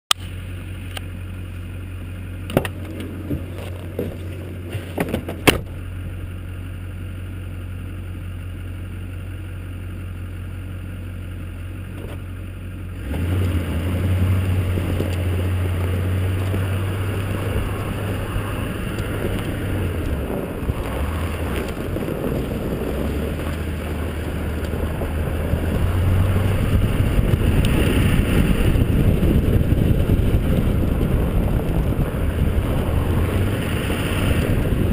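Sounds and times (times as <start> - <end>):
road noise: 0.1 - 34.9
diesel engine idling: 0.2 - 4.7, 5.3 - 34.9
wind noise: 13.2 - 34.9.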